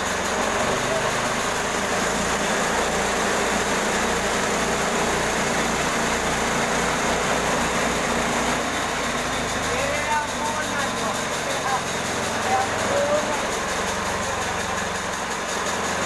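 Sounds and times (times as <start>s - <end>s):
bandsaw mill engine droning: 0.0s - 16.0s.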